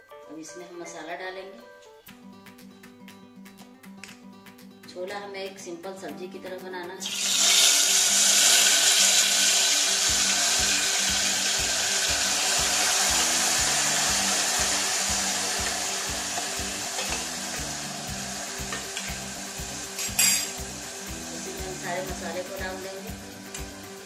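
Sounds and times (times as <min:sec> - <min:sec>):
paste sizzling in hot oil: 0:07.0 - 0:24.0.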